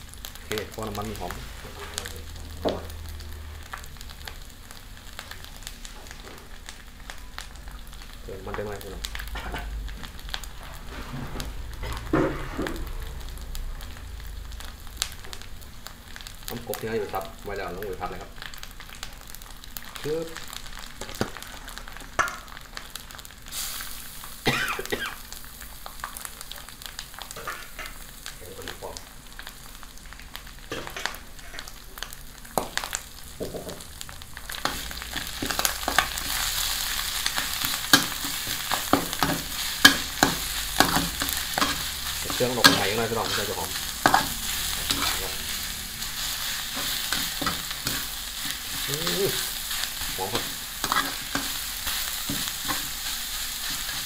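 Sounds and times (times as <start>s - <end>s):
meat sizzling in a wok: 0.0s - 54.0s
metal spatula scraping: 34.6s - 54.0s.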